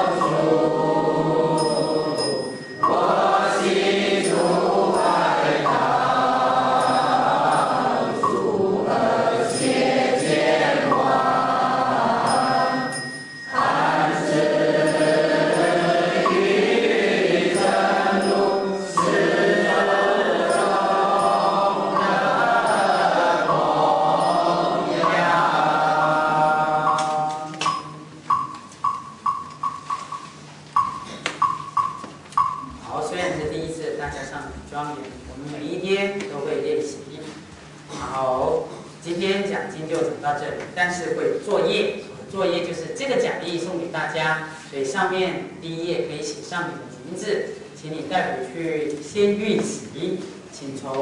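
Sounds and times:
voices chanting in unison: 0.0 - 28.1
light ringing ticks: 1.6 - 3.2, 6.7 - 8.5, 12.3 - 16.5, 26.8 - 32.8.

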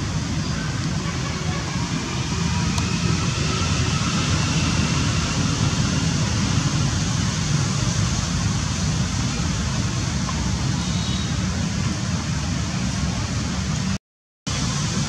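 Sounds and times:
low fluttering rumble: 0.0 - 10.5.

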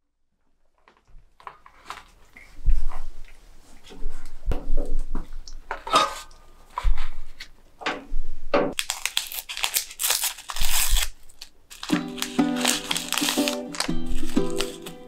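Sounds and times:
handling noises: 8.7 - 15.0
tea bag sachet tearing: 8.8 - 15.0.

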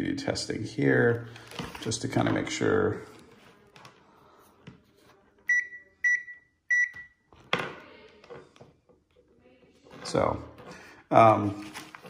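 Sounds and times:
multimeter continuity beeps: 5.5 - 7.2.

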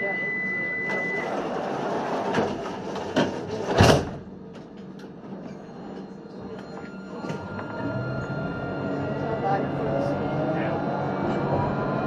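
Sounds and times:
tram doors closing with thud: 0.8 - 9.2.

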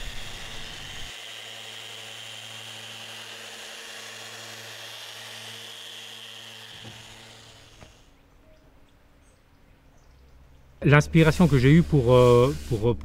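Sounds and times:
orbital sander on wood: 0.0 - 8.1.

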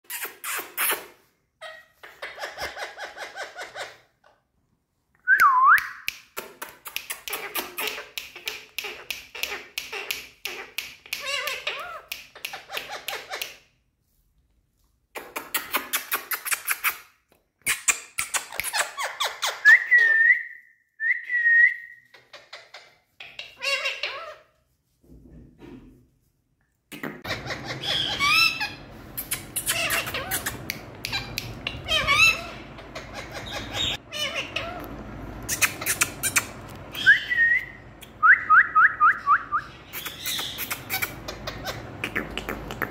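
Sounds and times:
parakeets chattering: 1.6 - 4.1, 7.0 - 13.6, 22.2 - 24.4, 27.2 - 38.2, 39.5 - 42.9
parakeet whistles: 35.5 - 41.8.

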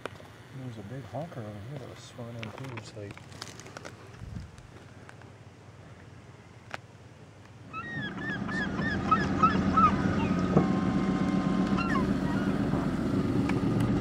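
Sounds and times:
gulls calling: 7.6 - 14.0
outboard motor humming: 7.7 - 14.0.

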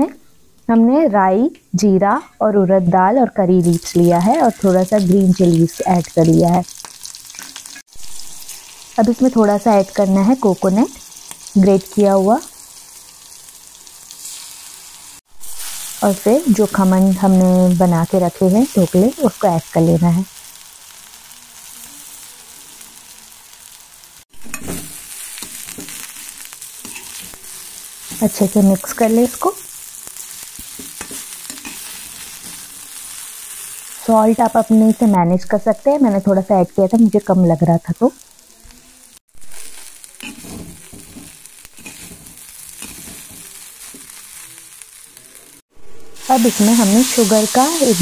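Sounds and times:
oil sizzling: 3.0 - 48.0
spatula scraping and knocking pan: 24.4 - 26.2, 30.6 - 32.7, 40.2 - 44.2.

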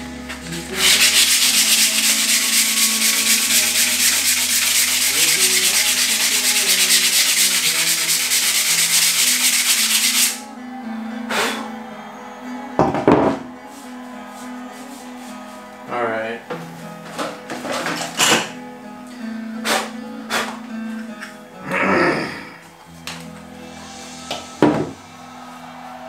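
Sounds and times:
sandpaper rasping on wood: 0.4 - 10.4.

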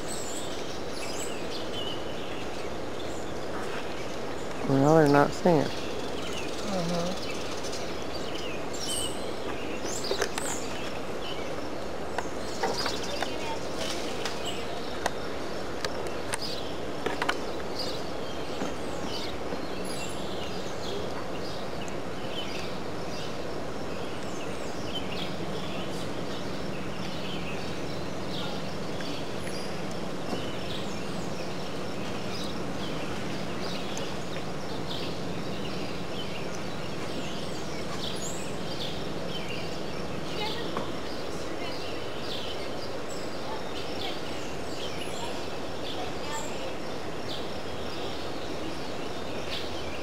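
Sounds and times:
high chirps and calls: 0.0 - 50.0.

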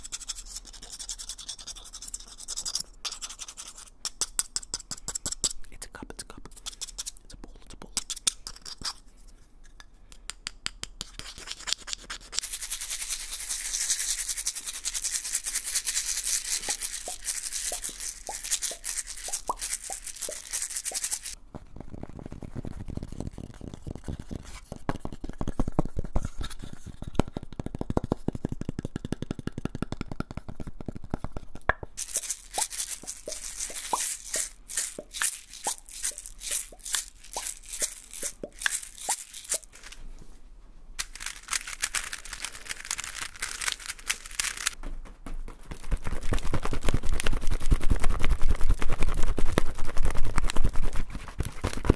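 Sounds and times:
glass jar shaking and rattling: 12.4 - 21.4, 32.0 - 40.0, 41.0 - 44.8.

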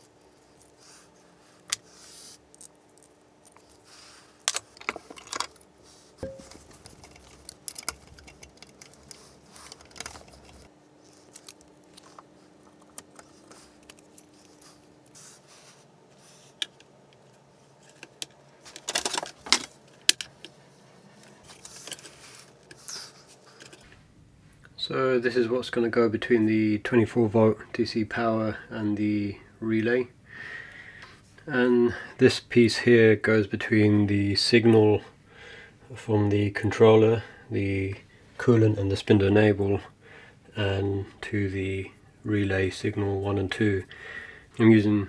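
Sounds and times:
tools clicking and scraping: 3.4 - 5.6, 6.2 - 14.8, 21.2 - 23.9
screws rattling in plastic organiser: 6.4 - 10.7, 18.0 - 20.3.

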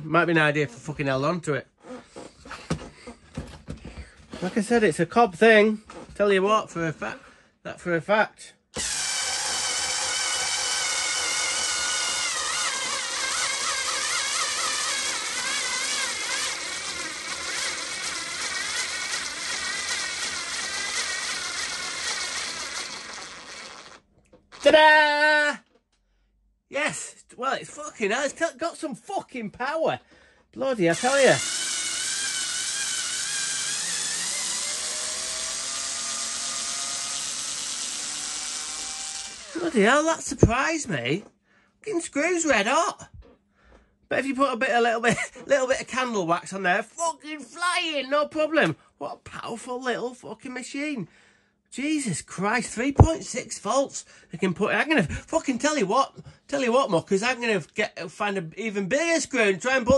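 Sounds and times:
electric screwdriver whining under load: 8.8 - 24.7, 31.0 - 39.8.

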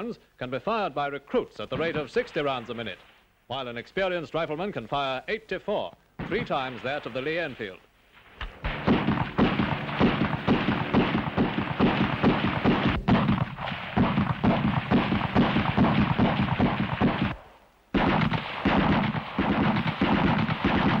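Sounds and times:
rifle firing rapid shots: 8.4 - 17.4, 18.0 - 21.0.

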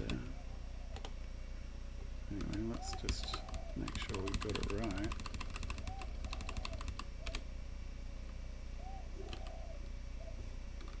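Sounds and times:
computer keyboard typing: 2.3 - 7.4, 9.3 - 9.5, 10.8 - 11.0.

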